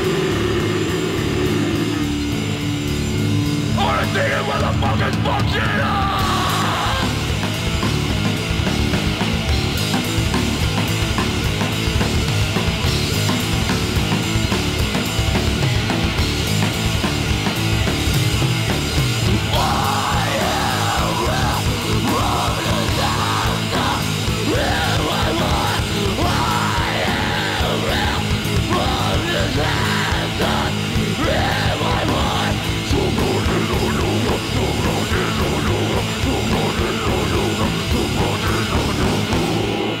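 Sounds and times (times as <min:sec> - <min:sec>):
distorted electric guitars: 0:00.0 - 0:40.0
heavy metal band playing: 0:00.0 - 0:40.0
screamed vocals: 0:03.8 - 0:07.4, 0:19.4 - 0:40.0.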